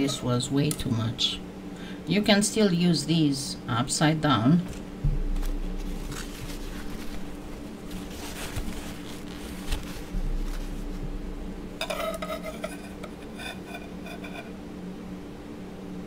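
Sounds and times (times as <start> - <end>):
blade scraping clay: 11.9 - 14.6.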